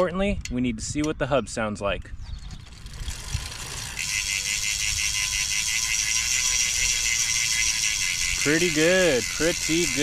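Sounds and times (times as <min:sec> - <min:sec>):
bicycle hub ratchet clicking: 0:02.6 - 0:10.0.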